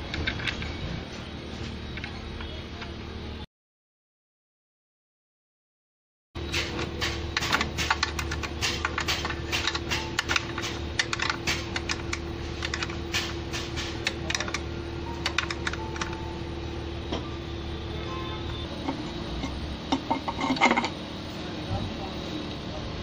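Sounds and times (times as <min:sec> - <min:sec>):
steady background hum: 0:00.0 - 0:03.5, 0:06.4 - 0:23.0
spanner clicking on nuts: 0:06.5 - 0:16.2.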